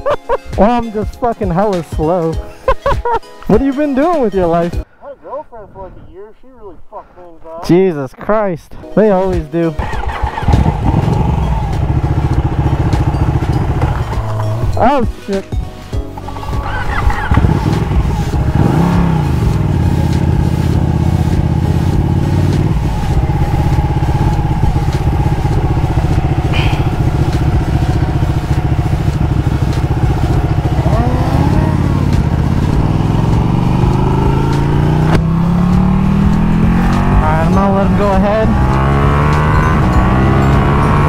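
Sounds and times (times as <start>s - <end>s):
motorcycle engine accelerating: 9.7s - 15.0s, 16.2s - 41.0s.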